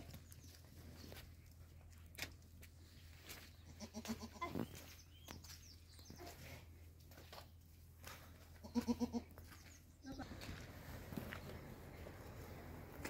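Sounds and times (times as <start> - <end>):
goat bleating: 3.7 - 4.6, 8.6 - 9.4.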